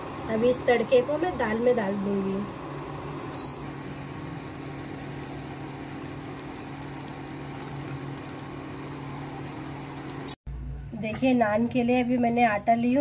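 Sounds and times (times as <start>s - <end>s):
hot oil sizzling and crackling: 0.0s - 10.4s.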